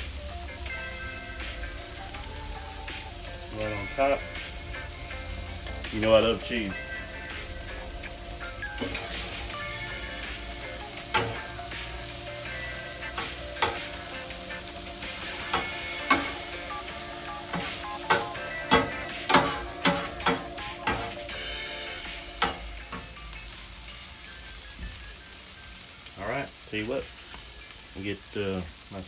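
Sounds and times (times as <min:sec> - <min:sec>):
food sizzling: 0:00.0 - 0:29.0
metal spatula scraping griddle: 0:08.6 - 0:09.8, 0:17.0 - 0:21.3.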